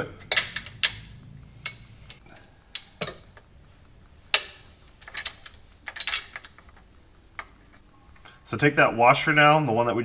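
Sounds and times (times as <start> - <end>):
metal tool clinking against bolt: 4.4 - 6.6.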